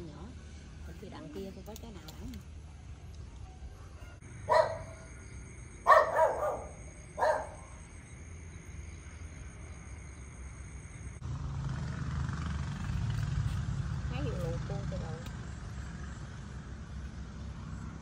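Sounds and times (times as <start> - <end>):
dog barking: 4.5 - 5.1, 5.8 - 7.7.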